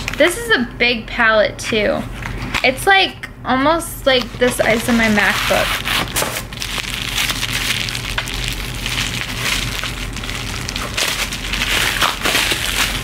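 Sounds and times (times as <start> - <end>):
plastic shrink wrap crinkling: 4.2 - 13.0.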